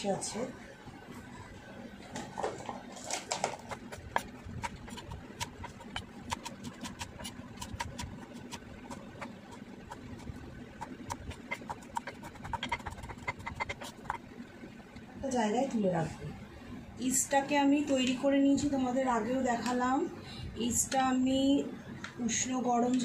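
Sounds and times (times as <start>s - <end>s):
knife chopping on cutting board: 3.4s - 14.2s.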